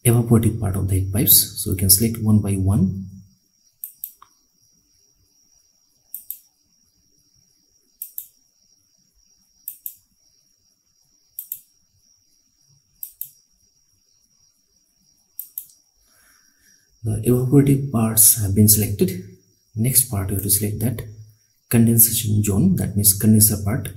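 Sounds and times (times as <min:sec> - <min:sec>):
computer mouse clicking: 0:03.8 - 0:04.4, 0:06.1 - 0:06.5, 0:08.0 - 0:08.4, 0:09.6 - 0:10.0, 0:11.4 - 0:11.7, 0:13.0 - 0:13.4, 0:15.4 - 0:15.8.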